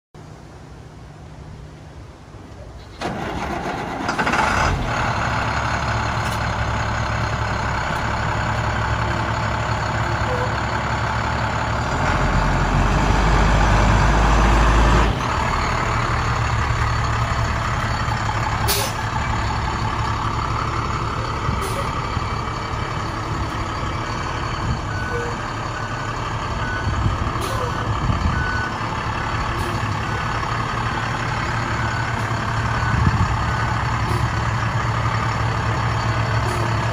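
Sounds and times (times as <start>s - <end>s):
diesel truck engine revving: 2.9s - 36.9s
reversing beeper: 10.0s - 10.7s, 15.5s - 30.4s, 31.4s - 34.7s.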